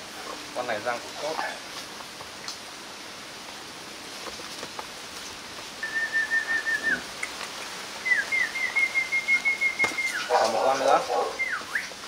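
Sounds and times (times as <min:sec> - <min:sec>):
person whistling: 0:05.8 - 0:07.0, 0:08.0 - 0:10.2.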